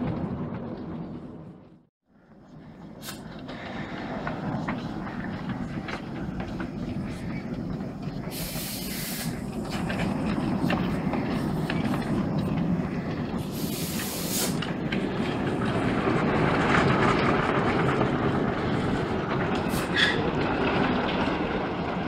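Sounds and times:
miniature steam locomotive running: 0:02.3 - 0:22.0
wheel clicks over rails: 0:02.9 - 0:22.0
sharp steam hisses: 0:03.0 - 0:03.4, 0:08.2 - 0:09.6, 0:13.4 - 0:14.7, 0:19.7 - 0:20.2.

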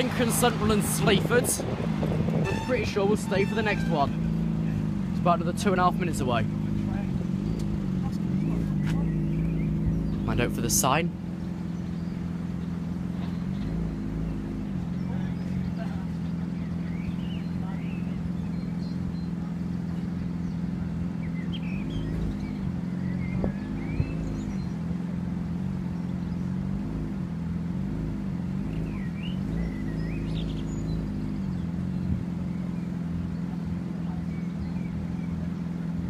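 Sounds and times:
birds chirping: 0:00.0 - 0:36.0
vehicle engine idling: 0:00.0 - 0:36.0.

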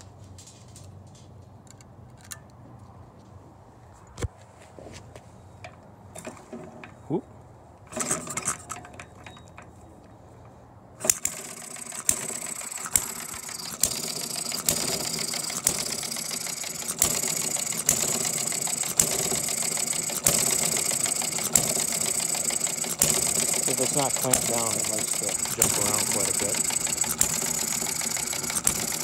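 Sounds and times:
mechanical clatter: 0:07.8 - 0:10.1, 0:11.0 - 0:29.0
model gas engine popping: 0:07.9 - 0:09.7, 0:11.0 - 0:29.0.

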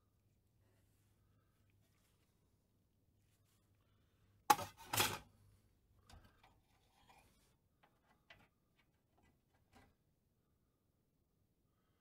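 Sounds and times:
clicks and rustles of parts: 0:06.0 - 0:10.0.

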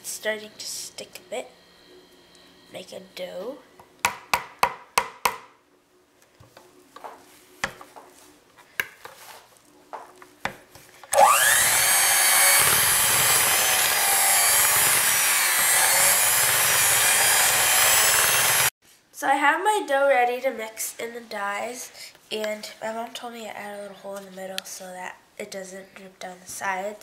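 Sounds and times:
electric hand mixer running: 0:11.1 - 0:18.7.

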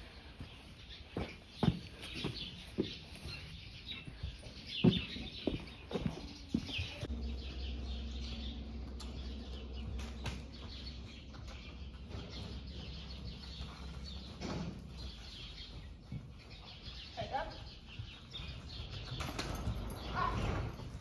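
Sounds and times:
small birds chirping: 0:00.0 - 0:21.0
low steady hum: 0:07.0 - 0:15.5.

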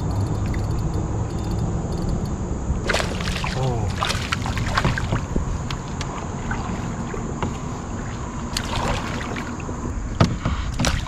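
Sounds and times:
wind rumble on microphone: 0:00.0 - 0:11.0
fish splashing in water: 0:02.8 - 0:09.8, 0:10.8 - 0:11.0.

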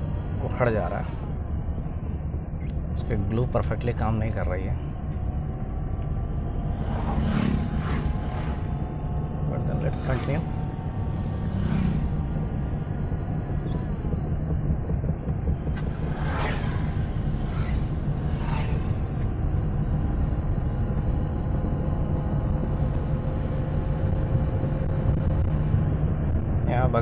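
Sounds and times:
car cabin engine and road rumble: 0:00.0 - 0:27.0
passing vehicles whooshing: 0:05.0 - 0:21.0.

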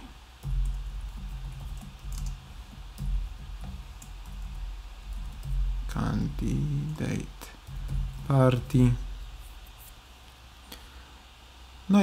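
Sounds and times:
steady low hum: 0:00.0 - 0:12.0
keyboard typing: 0:00.4 - 0:07.0.

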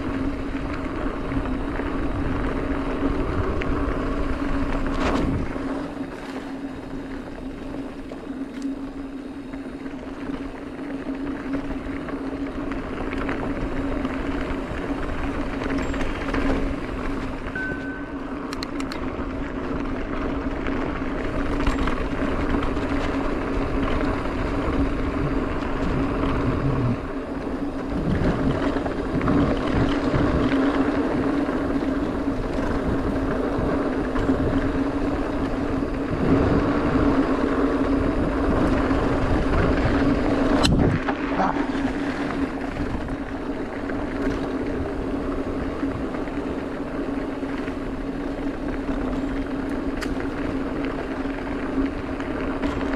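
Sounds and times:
bike tyres rolling on dirt: 0:00.0 - 0:52.9
steady hum: 0:00.0 - 0:52.9.

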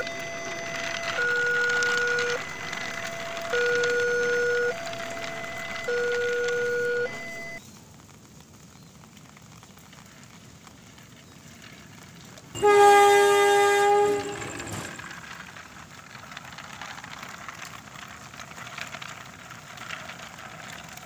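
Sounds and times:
locomotive horn: 0:00.0 - 0:07.6, 0:12.6 - 0:15.1
two-note electronic warning tone: 0:00.0 - 0:07.6, 0:12.6 - 0:13.1.

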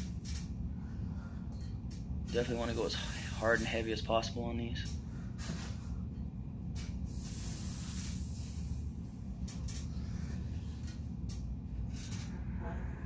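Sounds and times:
steady low hum: 0:00.0 - 0:13.0
man hissing breaths: 0:02.7 - 0:03.7, 0:07.0 - 0:09.2.

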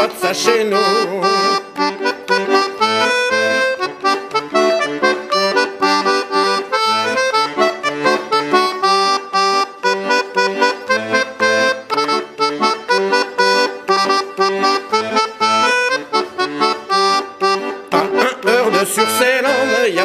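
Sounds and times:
accordion playing dance tune: 0:00.0 - 0:20.0.

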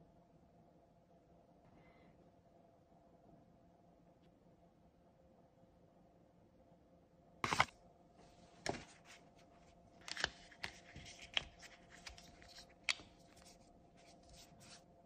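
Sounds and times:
case scraping on phone: 0:07.4 - 0:07.7.

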